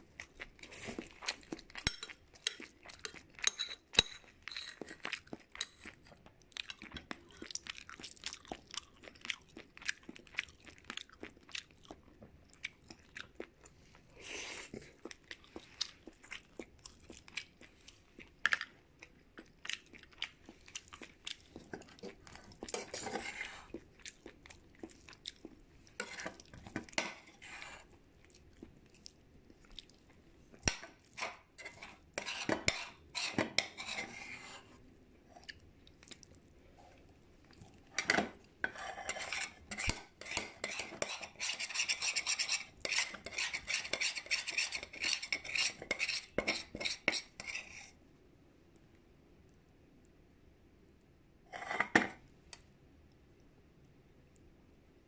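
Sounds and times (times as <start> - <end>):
utensils clinking and scraping dish: 1.8 - 4.8, 22.0 - 23.7, 38.0 - 47.8, 51.5 - 52.2.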